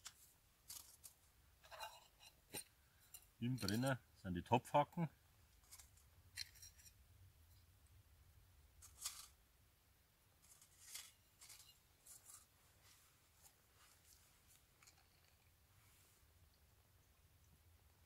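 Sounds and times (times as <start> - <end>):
faint metallic clicks and scrapes: 0.0 - 4.0, 5.5 - 7.7, 8.8 - 9.4, 10.4 - 16.6.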